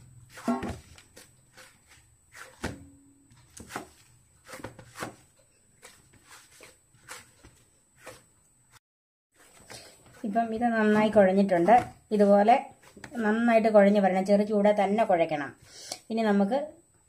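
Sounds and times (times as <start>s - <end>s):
dough thumping on steel plate: 0.3s - 1.3s.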